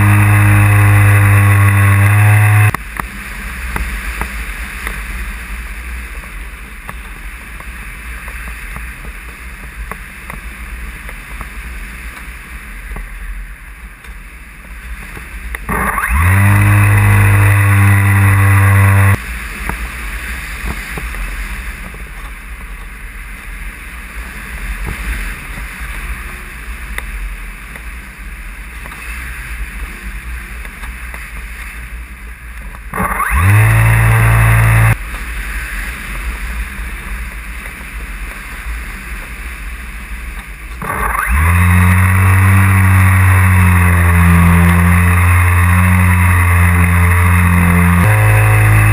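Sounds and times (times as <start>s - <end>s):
electric motor whine: 0.0s - 2.8s, 15.7s - 19.2s, 32.9s - 35.0s, 40.8s - 48.9s.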